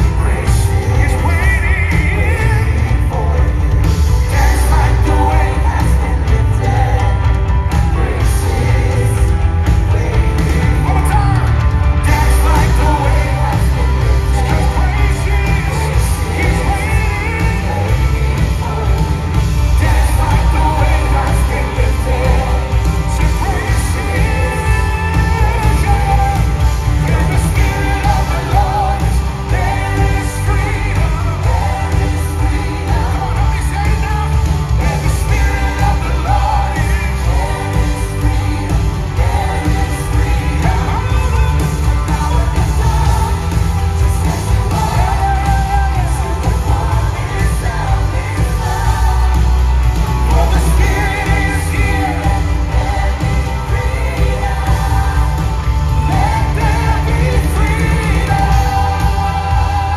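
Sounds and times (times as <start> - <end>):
live band with singers: 0.0 - 59.9.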